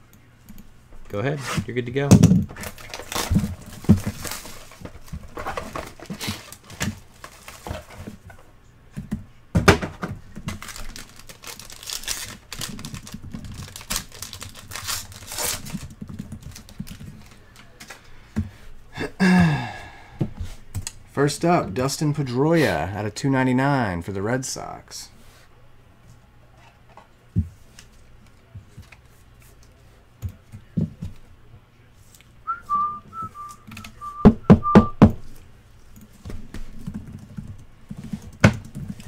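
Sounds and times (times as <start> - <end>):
cardboard rustling: 2.5 - 8.2
foil pack crinkling and tearing: 2.6 - 4.8, 10.5 - 17.4.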